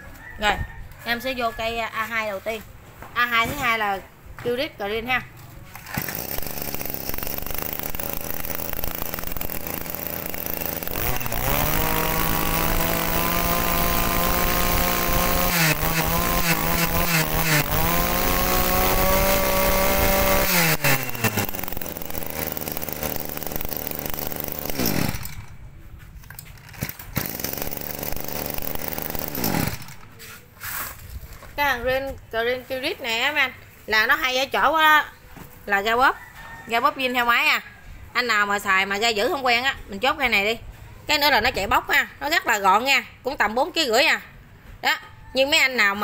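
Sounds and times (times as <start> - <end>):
brush cutter engine revving: 5.7 - 25.6, 26.5 - 30.8.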